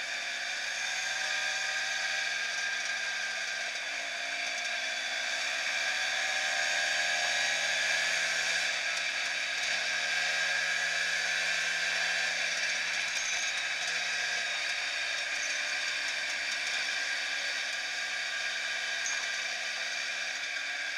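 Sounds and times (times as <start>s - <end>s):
scooter engine and wind whirring: 0.0s - 20.9s.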